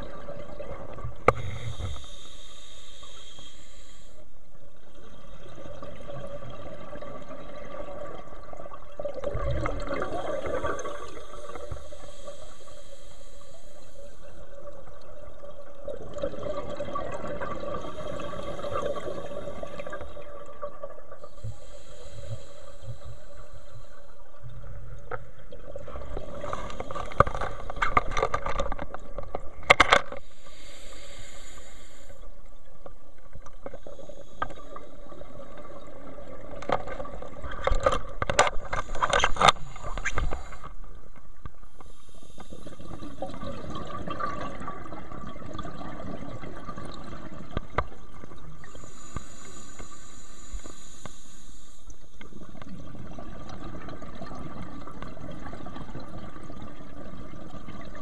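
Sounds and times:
faint steady hum: 0:00.0 - 0:58.0
hissing regulator inhalations: 0:01.3 - 0:04.3, 0:10.6 - 0:14.3, 0:21.3 - 0:24.2, 0:30.2 - 0:32.3, 0:48.6 - 0:52.2.

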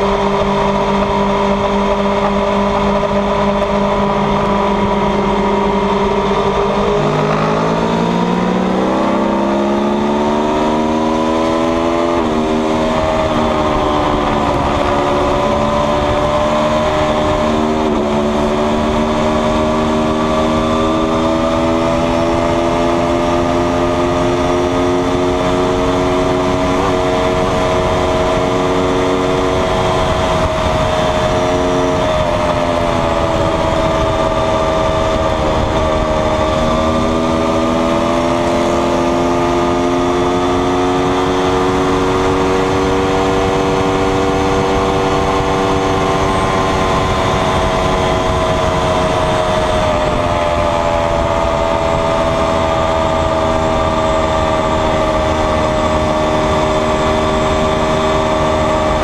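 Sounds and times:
motorcycle engine running: 0:00.0 - 0:59.0
wind noise: 0:00.0 - 0:59.0.

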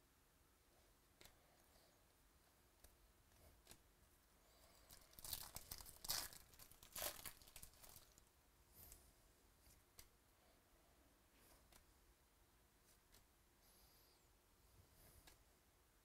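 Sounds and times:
foil wrapper tearing and crinkling: 0:04.9 - 0:08.2.

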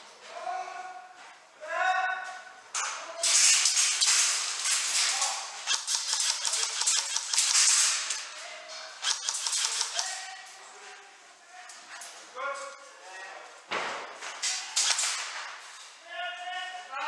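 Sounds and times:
airsoft guns firing bursts: 0:03.2 - 0:08.2, 0:09.0 - 0:10.2, 0:14.8 - 0:15.4.

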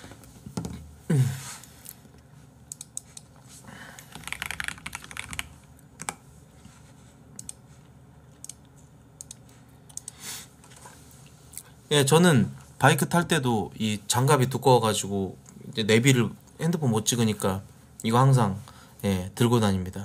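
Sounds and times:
keyboard typing: 0:04.1 - 0:06.2.

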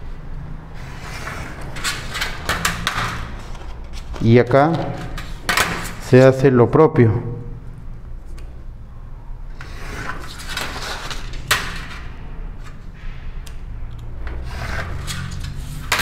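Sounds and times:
knife scraping along ruler: 0:14.4 - 0:16.0.

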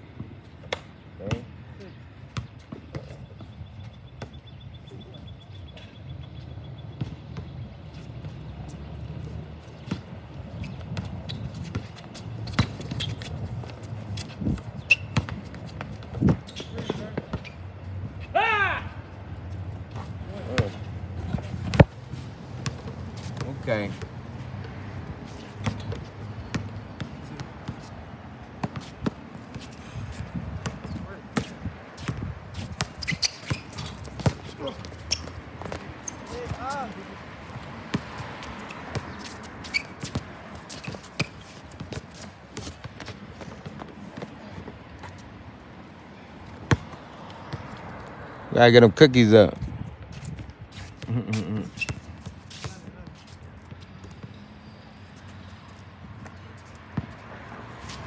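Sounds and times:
basketball and feet thuds: 0:06.9 - 0:18.3, 0:19.5 - 0:28.0, 0:28.6 - 0:36.9, 0:46.6 - 0:47.9
basketball bouncing on hard court: 0:11.0 - 0:17.4, 0:46.7 - 0:47.6.

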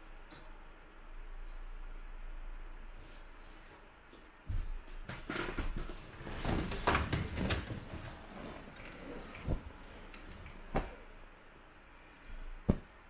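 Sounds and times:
rustling: 0:05.7 - 0:11.4.

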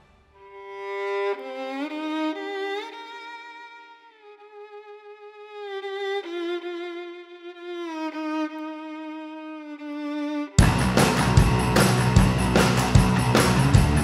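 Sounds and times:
solo violin slow melody: 0:00.4 - 0:10.6.

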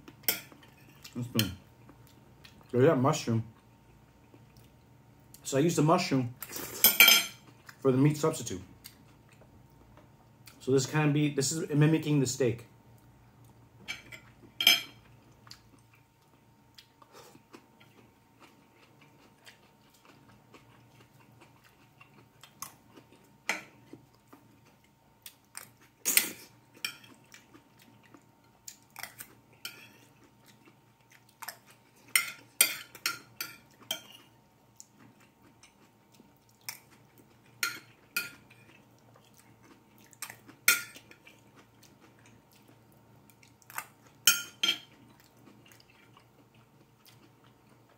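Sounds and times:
faint low hum: 0:00.0 - 0:47.9
chewing: 0:15.0 - 0:32.6, 0:33.4 - 0:44.2, 0:44.8 - 0:47.9.

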